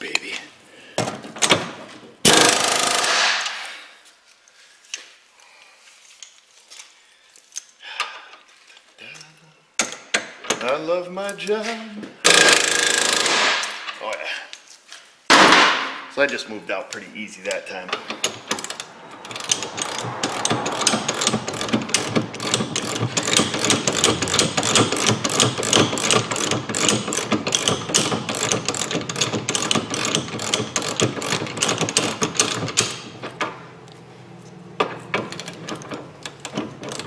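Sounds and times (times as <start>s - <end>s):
ratchet wrench clicking: 2.3s - 3.2s, 12.3s - 13.8s, 18.0s - 33.1s.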